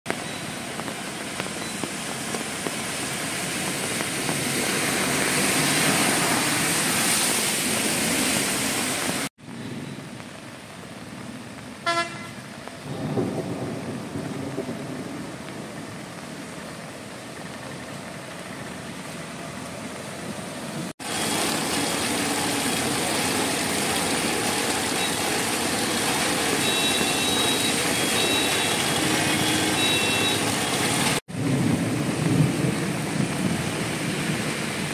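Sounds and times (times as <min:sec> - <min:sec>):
passing traffic: 0:00.1 - 0:13.6, 0:14.4 - 0:34.9
heavy rain on wet street: 0:00.1 - 0:34.9
vehicle horn toot: 0:11.8 - 0:12.4, 0:26.5 - 0:30.9
short high beeps: 0:29.4 - 0:30.4.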